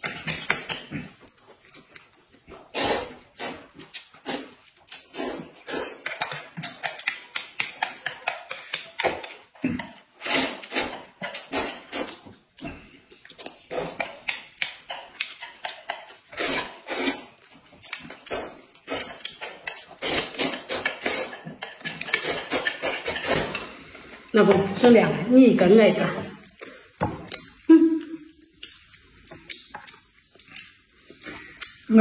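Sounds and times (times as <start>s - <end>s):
food chewing: 0.0s - 24.3s, 26.4s - 31.9s
noodles slurped: 2.4s - 6.3s, 9.6s - 14.3s, 15.4s - 23.6s
chopsticks clicking on plates: 6.0s - 10.1s, 14.0s - 16.3s, 19.0s - 19.9s, 20.5s - 23.7s.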